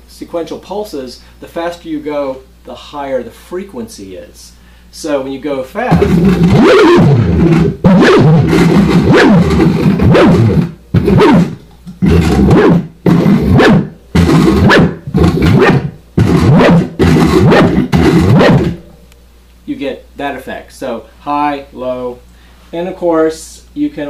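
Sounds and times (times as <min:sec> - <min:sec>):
buzzing drone with sliding pitch: 0:05.9 - 0:18.8.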